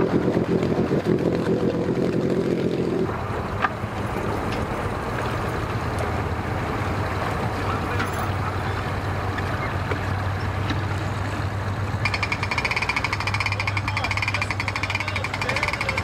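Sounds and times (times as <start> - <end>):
outboard motor idling: 0.0 - 16.0
rapid rhythmic buzzing rattle: 12.0 - 16.0.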